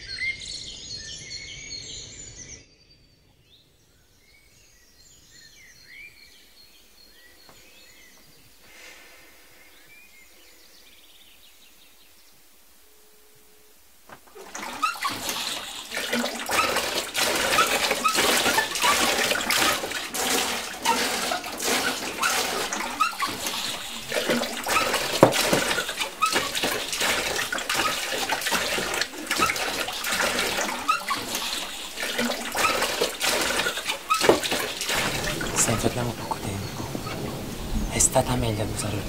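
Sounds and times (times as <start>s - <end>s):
tap water splashing into sink: 14.1s - 37.2s.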